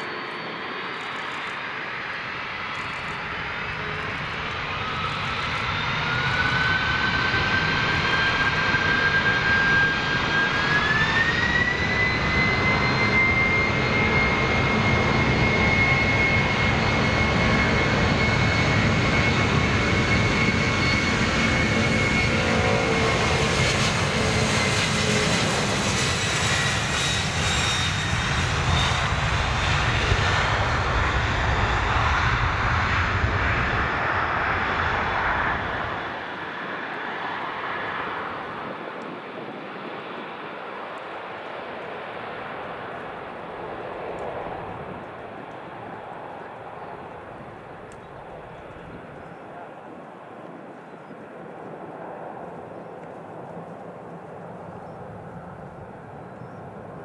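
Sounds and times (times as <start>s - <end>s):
jet engines whining: 0.0s - 57.0s
deep jet rumble: 2.2s - 41.2s.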